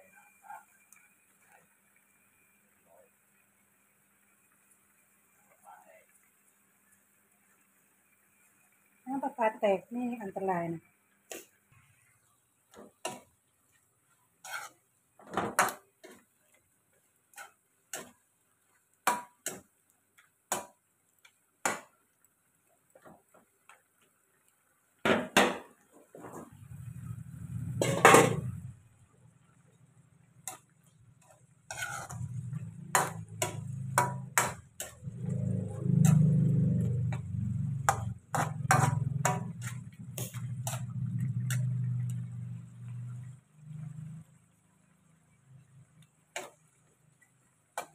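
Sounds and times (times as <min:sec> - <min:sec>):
liquid bubbling in wok: 0:00.0 - 0:47.9
metal spoon tapping pan: 0:19.0 - 0:21.9, 0:30.5 - 0:42.2
low steady hum: 0:26.6 - 0:44.6.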